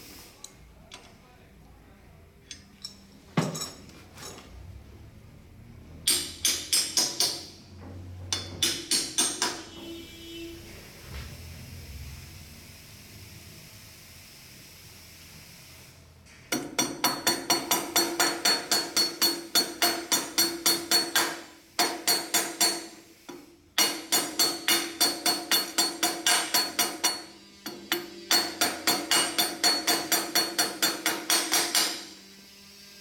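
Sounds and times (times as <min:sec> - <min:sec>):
hammer striking metal punch: 0:06.1 - 0:07.6, 0:08.3 - 0:09.7, 0:16.6 - 0:32.1.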